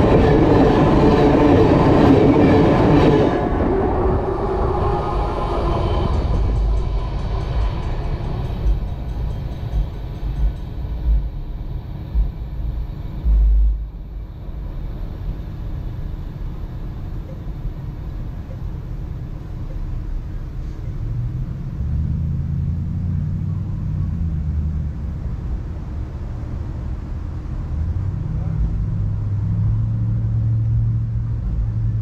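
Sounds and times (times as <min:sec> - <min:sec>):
low engine rumble: 0:00.0 - 0:32.0
low pitched drone: 0:00.0 - 0:32.0
wind thumps on microphone: 0:03.6 - 0:14.3.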